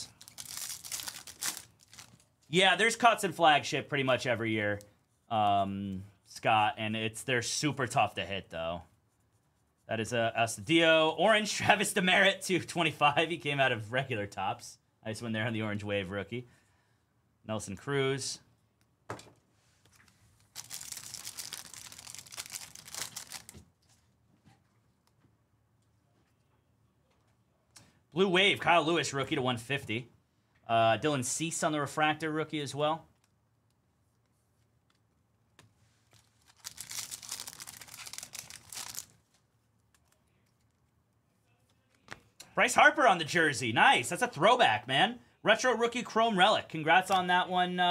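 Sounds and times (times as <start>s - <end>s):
wrapper tearing and crinkling: 0.1s - 2.2s, 20.4s - 23.6s, 36.1s - 39.2s.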